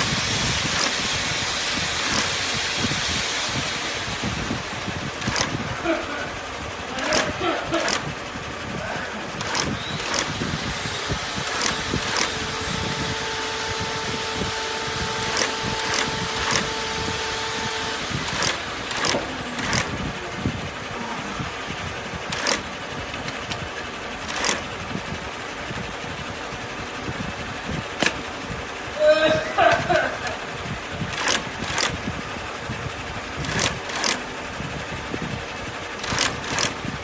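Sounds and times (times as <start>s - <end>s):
industrial sewing machine running: 0.0s - 37.0s
steady hum: 0.0s - 37.0s
sharp clicks: 5.2s - 5.6s, 7.0s - 8.1s, 9.4s - 10.3s, 11.5s - 12.4s, 15.2s - 16.7s, 18.3s - 20.0s, 22.3s - 24.7s, 31.1s - 32.0s, 33.4s - 34.2s, 36.0s - 36.8s.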